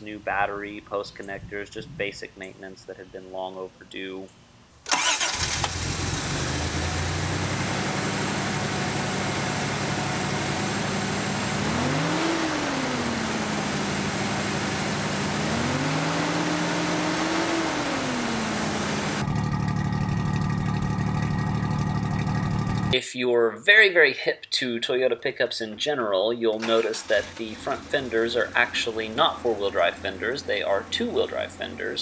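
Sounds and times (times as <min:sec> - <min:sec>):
engine idling and revving: 0:04.9 - 0:23.0, 0:26.6 - 0:31.8
exhaust idling at tailpipe: 0:05.8 - 0:11.8, 0:12.8 - 0:15.5, 0:18.3 - 0:23.0, 0:27.3 - 0:32.0.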